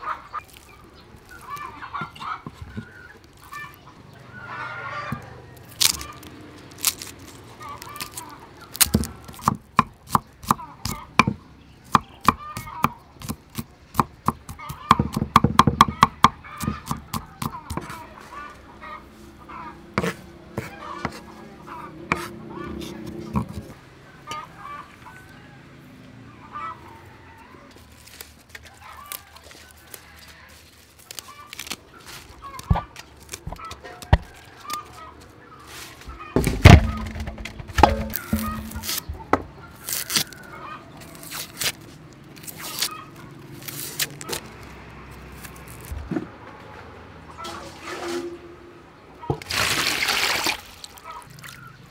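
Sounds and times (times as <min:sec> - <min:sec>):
cleaver chopping on wooden block: 0:08.8 - 0:18.0, 0:36.4 - 0:39.5
loud heavy thump: 0:36.4 - 0:38.8
sharp knocks on metal basin: 0:36.4 - 0:38.8.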